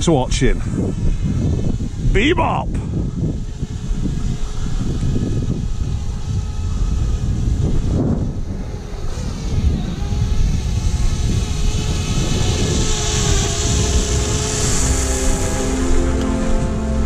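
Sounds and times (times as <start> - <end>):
drone propellers buzzing: 0.0 - 17.0
wind on microphone: 0.0 - 17.0.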